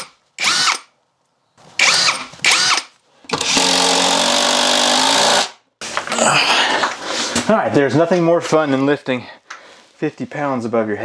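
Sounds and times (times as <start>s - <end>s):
cordless drill drilling wood: 0.0s - 0.9s, 1.8s - 5.6s.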